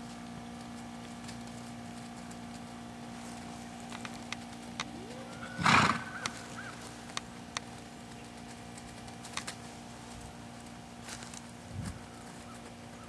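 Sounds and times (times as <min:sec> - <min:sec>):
wavering high call: 0:04.9 - 0:06.8
horse snorting: 0:05.3 - 0:06.4.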